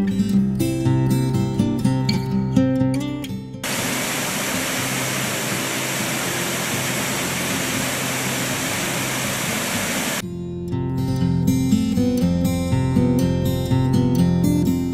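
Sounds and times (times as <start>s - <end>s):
waterfall rushing: 3.6s - 10.2s.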